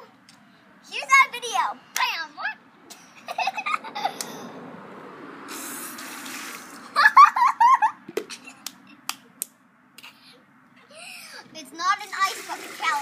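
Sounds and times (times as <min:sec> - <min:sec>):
water splashing onto concrete: 0:05.5 - 0:06.9, 0:12.0 - 0:13.0.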